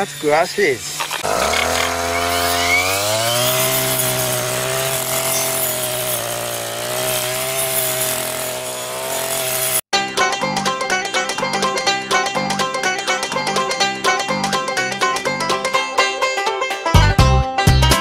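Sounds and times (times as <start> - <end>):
brush cutter engine running: 0.4 - 9.8.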